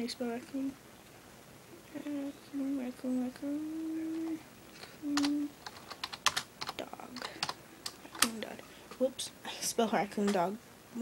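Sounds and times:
girl humming a tune: 1.8s - 5.6s
computer keyboard typing: 5.1s - 8.5s.

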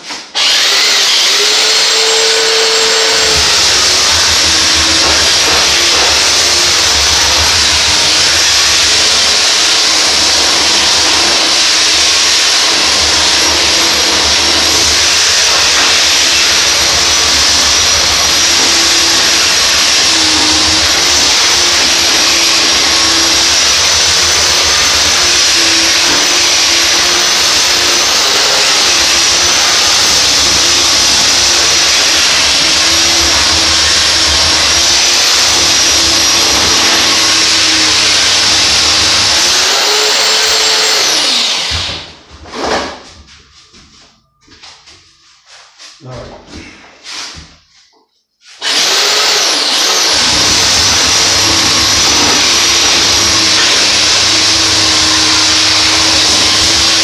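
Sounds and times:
electric planer sanding wood: 0.0s - 42.1s, 48.6s - 57.0s.

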